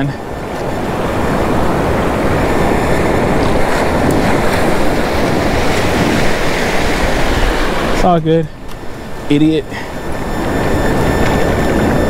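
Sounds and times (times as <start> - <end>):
waves breaking in surf: 0.0 - 12.0
wind rumbling on microphone: 0.0 - 12.0.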